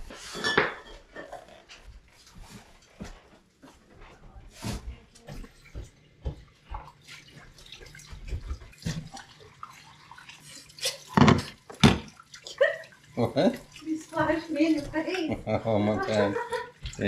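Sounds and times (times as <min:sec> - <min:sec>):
dishes clinking: 0:00.1 - 0:01.6, 0:11.0 - 0:12.2
faucet running into sink: 0:05.6 - 0:17.0.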